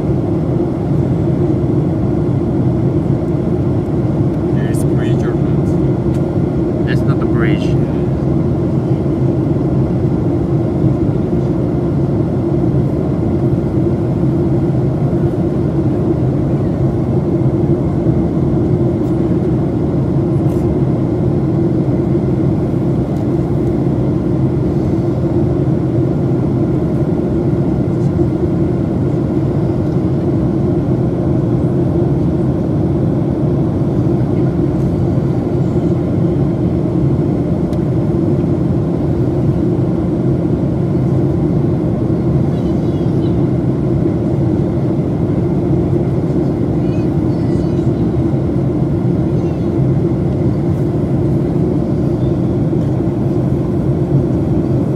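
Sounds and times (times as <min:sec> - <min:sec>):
jet engine drone in cabin: 0:00.0 - 0:54.9.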